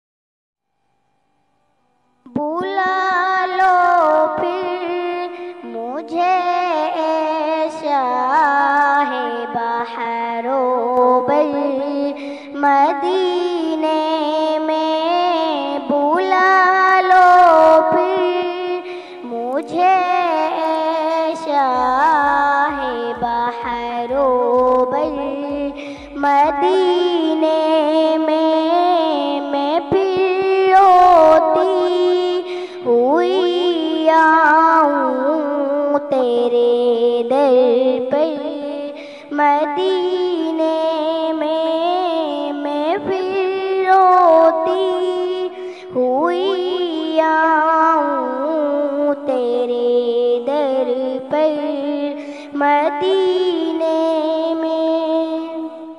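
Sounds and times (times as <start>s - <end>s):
girl singing: 2.2s - 55.9s
low steady beat: 22.2s - 26.9s.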